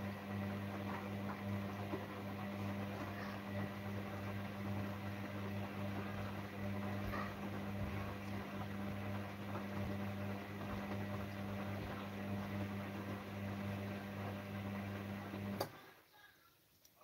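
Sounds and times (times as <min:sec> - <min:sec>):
washing machine motor humming: 0:00.0 - 0:15.8.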